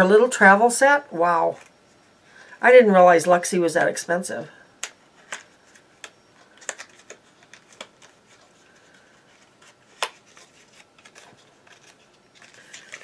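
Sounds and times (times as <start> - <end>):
packaging clicks and taps: 4.8 - 8.2.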